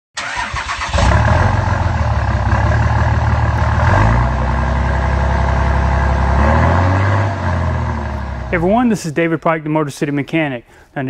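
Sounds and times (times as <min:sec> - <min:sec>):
large engine running: 0:00.6 - 0:08.8.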